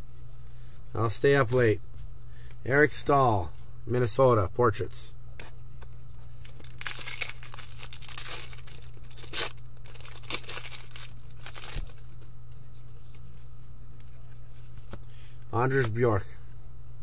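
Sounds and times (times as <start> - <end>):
low electrical hum: 0.0 - 17.0
cards being handled: 5.4 - 15.0
foil wrapper crinkling and tearing: 6.4 - 12.2.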